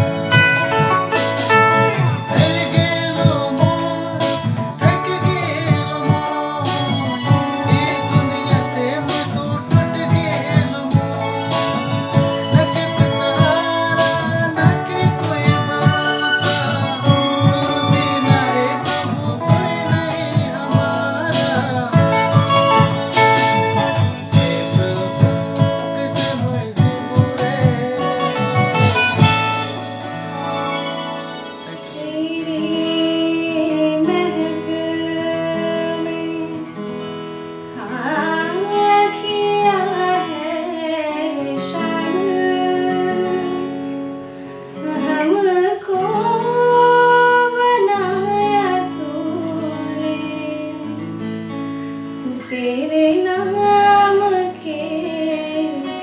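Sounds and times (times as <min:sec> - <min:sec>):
man singing: 0:00.0 - 0:29.9, 0:31.5 - 0:36.8
electric guitar strumming: 0:00.0 - 0:56.0
woman singing slow melody: 0:31.7 - 0:37.0, 0:37.6 - 0:44.1, 0:44.8 - 0:51.3, 0:52.2 - 0:56.0.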